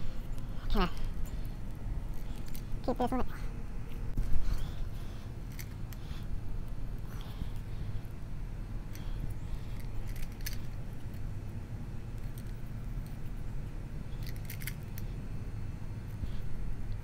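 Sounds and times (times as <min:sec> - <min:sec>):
roller clicks and crackles: 0:14.2 - 0:15.1.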